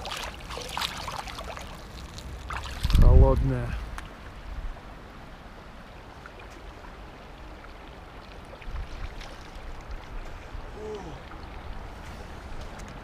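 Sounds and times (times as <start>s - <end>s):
wind rumble on microphone: 2.2s - 5.0s, 8.6s - 13.0s.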